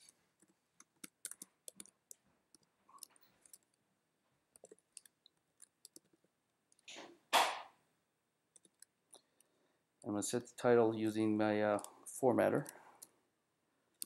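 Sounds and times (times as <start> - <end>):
faint keyboard typing: 0.0 - 3.8, 4.5 - 7.0, 8.5 - 10.5, 11.1 - 13.2.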